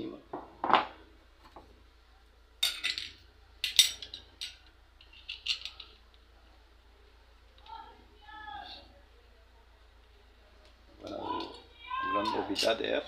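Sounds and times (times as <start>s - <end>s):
metal tools clinking: 2.6s - 6.0s, 12.2s - 13.0s.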